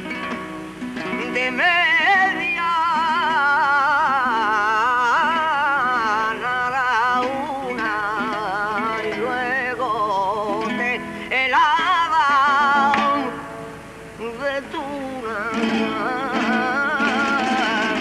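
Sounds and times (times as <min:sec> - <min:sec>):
flamenco guitar: 0:00.0 - 0:18.0
man singing: 0:01.0 - 0:13.6, 0:14.2 - 0:18.0.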